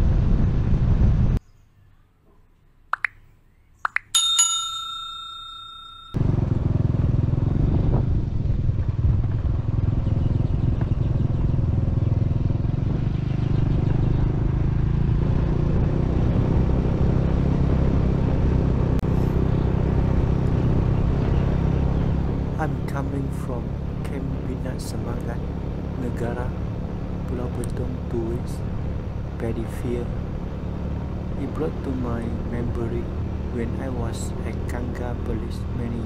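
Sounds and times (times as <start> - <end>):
bell-like notification ding: 4.0 - 6.2
vehicle rumble on gravel: 6.2 - 16.6, 17.4 - 36.0.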